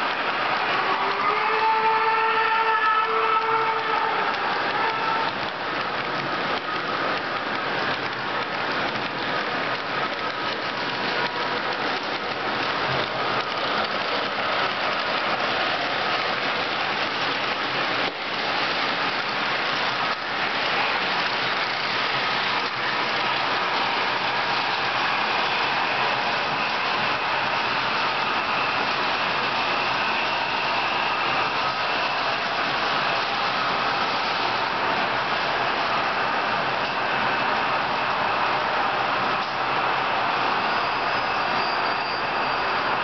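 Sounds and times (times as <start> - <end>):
model train wheels rattling: 4.3 - 25.9.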